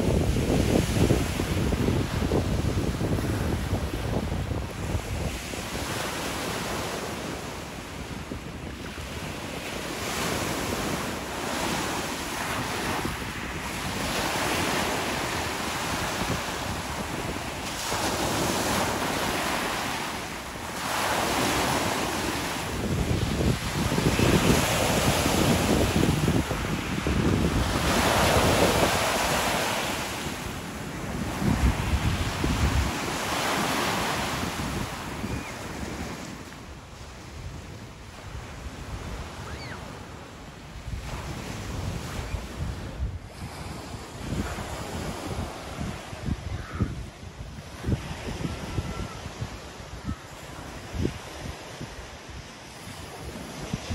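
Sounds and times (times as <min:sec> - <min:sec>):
waves washing up pebble beach: 0:08.9 - 0:36.4.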